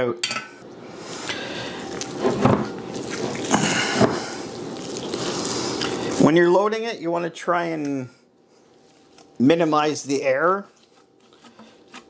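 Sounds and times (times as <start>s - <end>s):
hands squishing wet meat: 1.0s - 6.4s.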